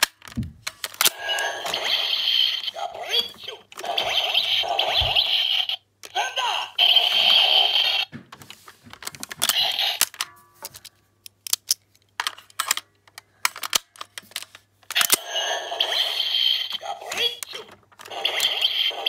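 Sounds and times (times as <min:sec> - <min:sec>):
toy sword electronic sound effects: 0:01.2 - 0:08.1, 0:15.1 - 0:19.0.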